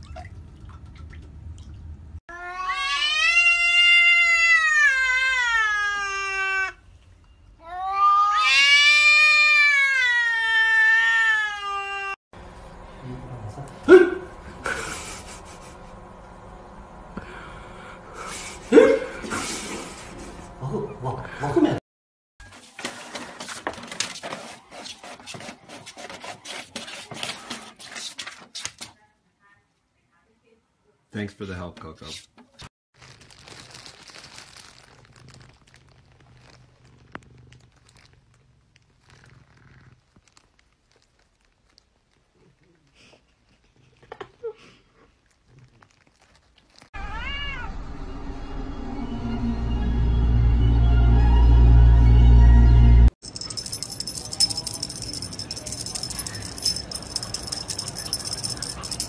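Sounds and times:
cat yowling: 0:02.3 - 0:06.8, 0:07.6 - 0:12.2, 0:47.0 - 0:47.8
cat scratching paper in tray: 0:22.5 - 0:28.9.

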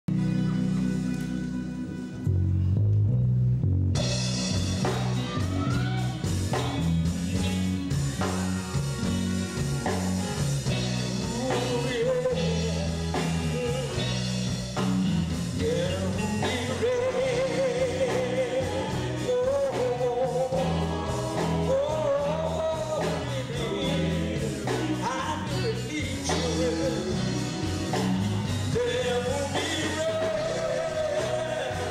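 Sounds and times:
gospel band playing: 0:00.1 - 0:31.9
man singing lead vocal: 0:11.0 - 0:14.4, 0:15.2 - 0:31.9.

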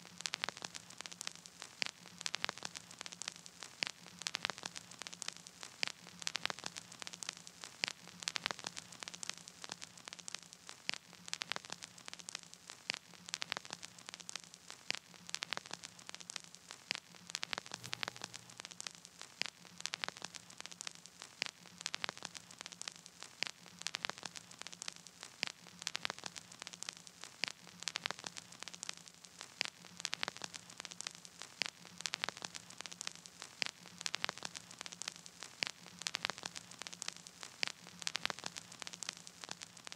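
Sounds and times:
crackling static: 0:00.0 - 0:39.9
faint low hum: 0:17.7 - 0:18.9.

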